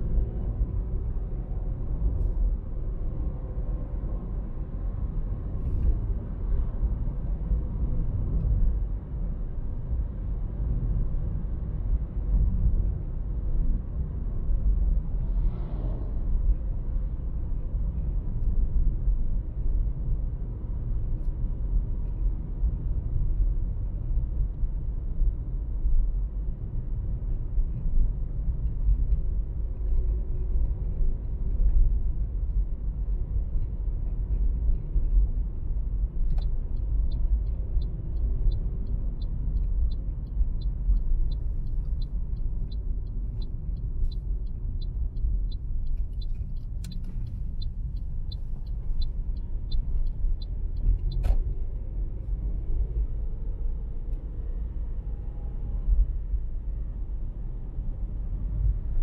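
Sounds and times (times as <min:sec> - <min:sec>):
turn signal ticking: 0:36.1 - 0:53.0.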